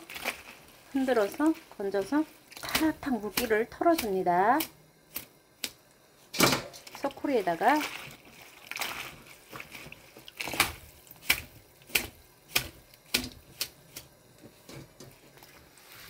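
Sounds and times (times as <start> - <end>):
soft wet rustle: 0.0 - 2.8, 6.2 - 12.0, 12.6 - 16.0
wet leaves tapping on steel bowl: 1.3 - 5.8.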